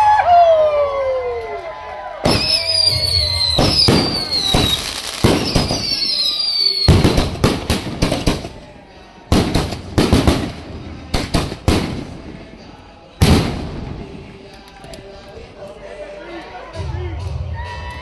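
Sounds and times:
firework bangs: 2.2s - 14.5s
firework whistles falling in pitch: 2.3s - 7.2s.

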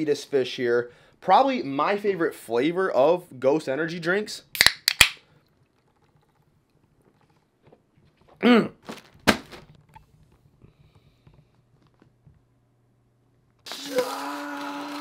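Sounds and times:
man's short vocal sound: 8.4s - 8.8s.

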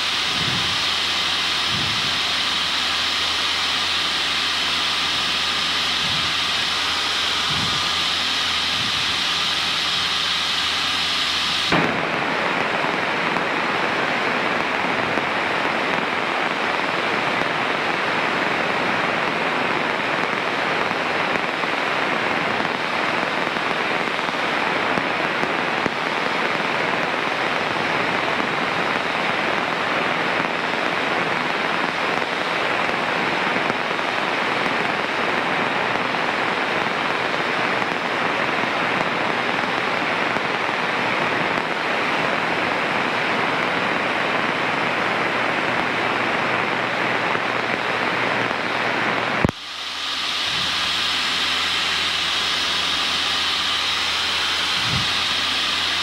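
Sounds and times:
radio static hiss: 0.0s - 56.0s
small plane cockpit noise: 0.0s - 56.0s.

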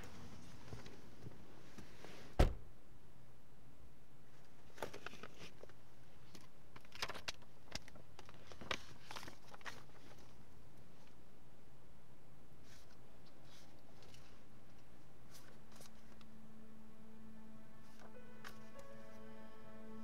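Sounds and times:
paper rustling and crinkling: 4.5s - 10.4s, 12.6s - 16.2s.

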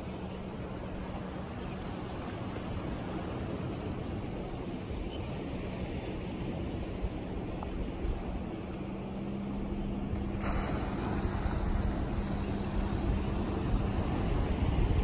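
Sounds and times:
faint engine hum: 0.0s - 15.0s
wind on microphone: 1.9s - 15.0s
surf washing against rocks: 10.1s - 15.0s.

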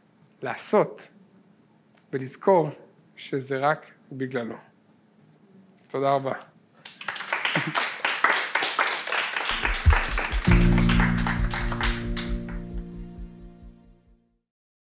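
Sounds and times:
audience clapping: 6.8s - 13.2s
closing music with held chord: 9.6s - 14.3s.

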